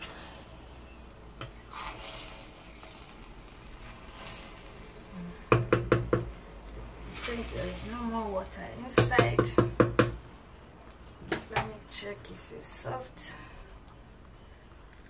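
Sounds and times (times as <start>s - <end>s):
spoon stirring rice in a pot: 1.4s - 4.7s
spoon knocking against pot: 5.5s - 6.3s.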